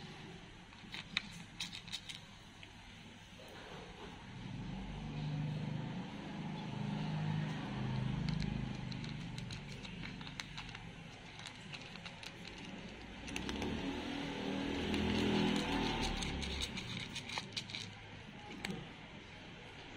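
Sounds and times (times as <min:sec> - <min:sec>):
cat crunching dry kibble: 0:00.8 - 0:02.6, 0:07.5 - 0:18.9.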